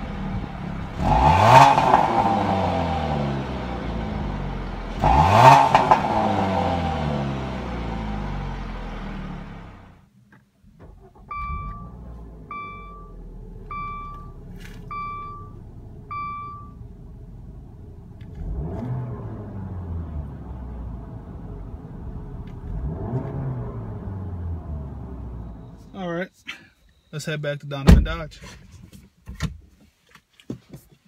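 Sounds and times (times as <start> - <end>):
car engine idling: 0.0 - 10.0, 10.6 - 26.0
car engine revving: 0.0 - 10.0, 10.8 - 25.9
dashboard warning chime: 11.3 - 16.8.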